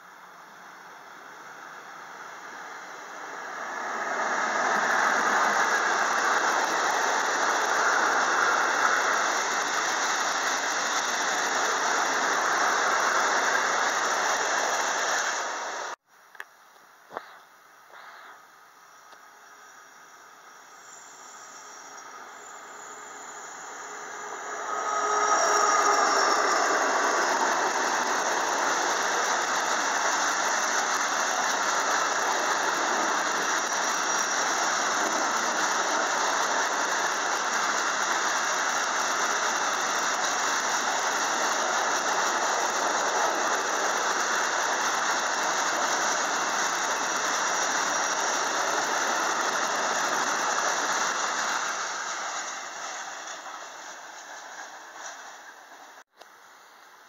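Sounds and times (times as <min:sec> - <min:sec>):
train wheels rushing on rail: 0:00.0 - 0:16.0, 0:20.8 - 0:56.1
high wheel squeal: 0:20.9 - 0:56.0.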